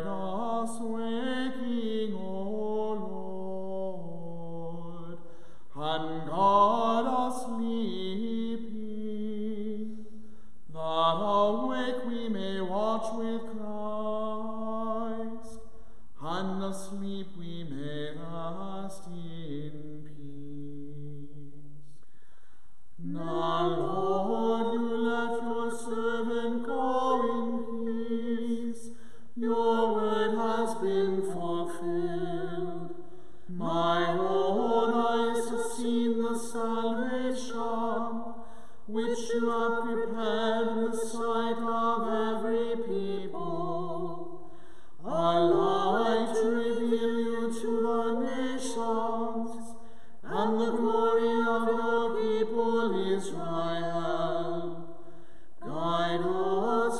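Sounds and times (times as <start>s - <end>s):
clergy chanting: 0.0s - 22.0s, 23.0s - 56.9s.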